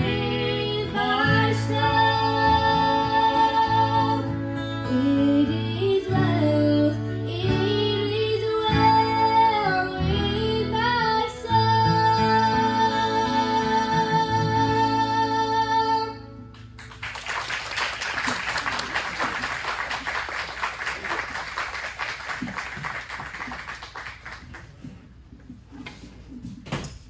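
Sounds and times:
fiddle and acoustic guitar tune: 0.0s - 16.8s
audience applauding: 16.6s - 24.8s.

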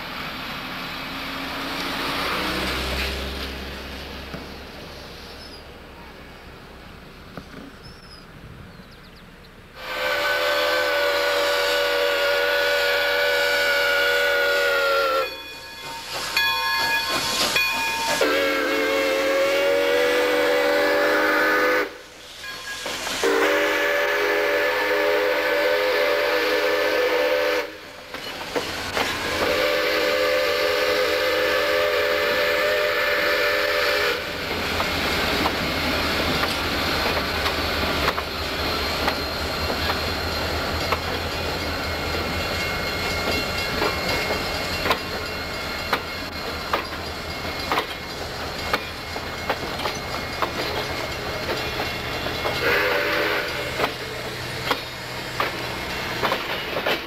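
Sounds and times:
steam hissing: 0.0s - 7.0s, 9.7s - 57.0s
steam locomotive whistle blasts: 9.8s - 28.0s, 29.2s - 34.6s, 52.0s - 54.8s.

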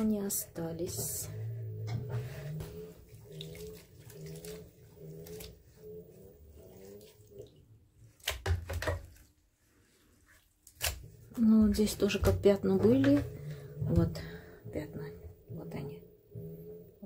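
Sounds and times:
wet laundry sloshing in water: 2.3s - 11.2s.

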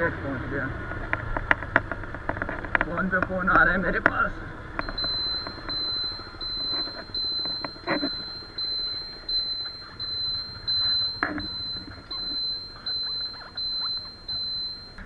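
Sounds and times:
high-pitched electronic beeps: 4.8s - 15.0s.

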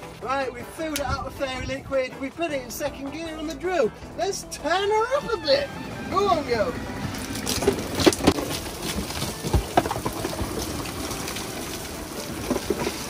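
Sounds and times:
water splashing in rotating drum: 7.0s - 13.0s
sharp knocks and splats: 7.2s - 13.0s.

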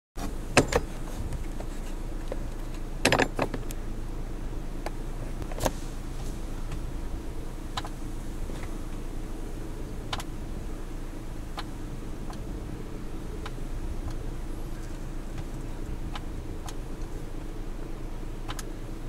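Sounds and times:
handling clicks and knocks: 0.2s - 3.8s
idling vehicle hum: 0.2s - 19.0s.

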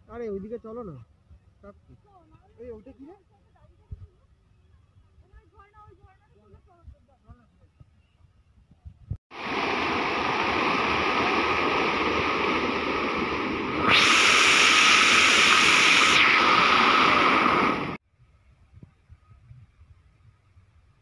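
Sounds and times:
fountain water splashing into basin: 9.3s - 18.0s.

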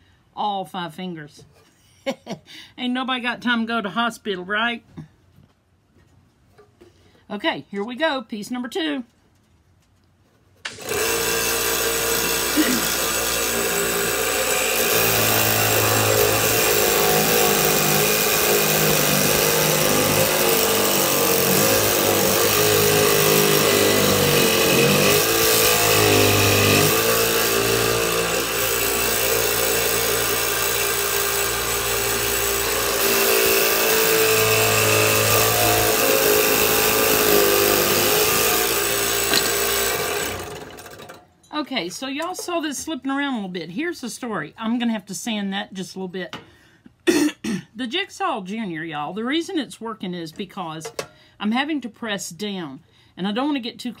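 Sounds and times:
scroll saw buzzing through wood: 10.6s - 41.2s.

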